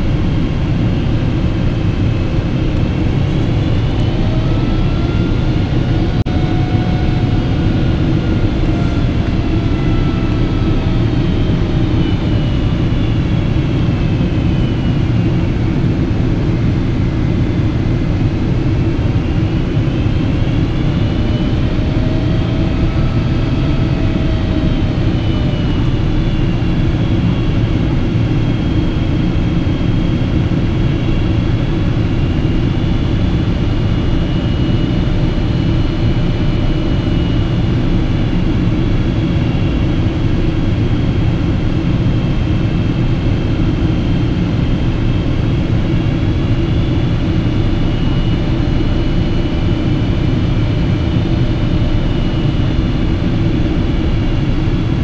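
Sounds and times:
whining engine tones: 0:00.0 - 0:17.1
airliner cabin roar: 0:00.0 - 0:55.0.

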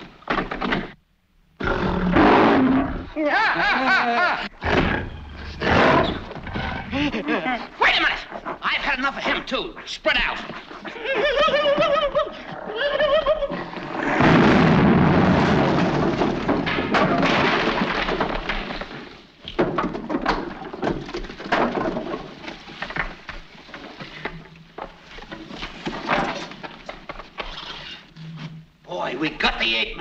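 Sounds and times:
room collapsing crash: 0:04.6 - 0:07.2, 0:13.6 - 0:24.0
wooden debris clattering: 0:13.8 - 0:27.4.

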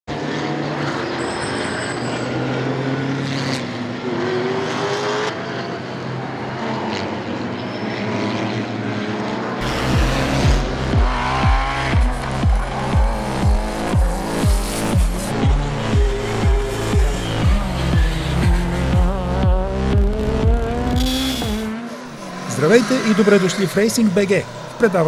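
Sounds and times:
race car engines revving: 0:00.1 - 0:25.0
music with heavy bass drum beat: 0:09.6 - 0:21.7.

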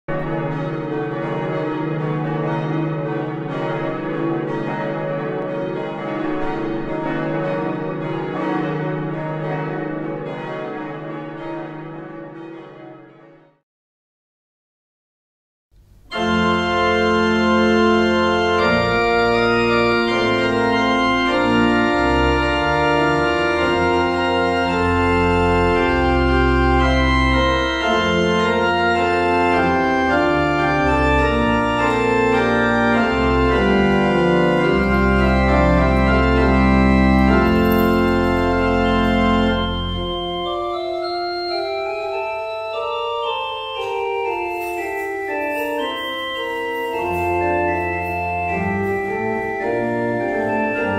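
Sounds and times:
church organ chords: 0:00.0 - 0:13.5, 0:15.8 - 0:50.9
deep organ pedal bass: 0:16.1 - 0:44.3, 0:47.0 - 0:50.9.

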